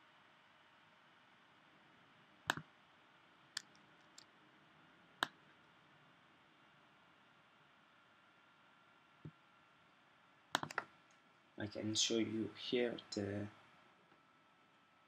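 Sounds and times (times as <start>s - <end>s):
faint room hiss: 0.0s - 15.0s
mouse and keyboard clicks: 2.5s - 2.7s, 10.5s - 10.9s.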